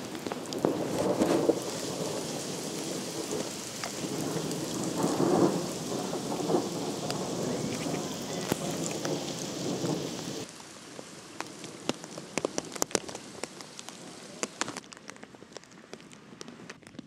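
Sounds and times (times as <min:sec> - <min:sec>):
thunder rumbling: 0:00.0 - 0:10.5
heavy rain: 0:00.0 - 0:16.8
raindrops ticking near microphone: 0:00.0 - 0:17.0.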